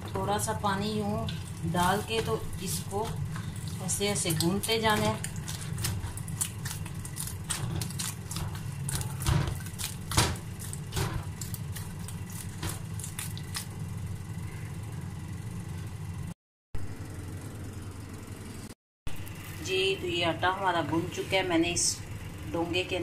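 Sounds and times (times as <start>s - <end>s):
hands kneading wet dough: 0.0s - 13.8s
steady low hum: 0.0s - 23.0s.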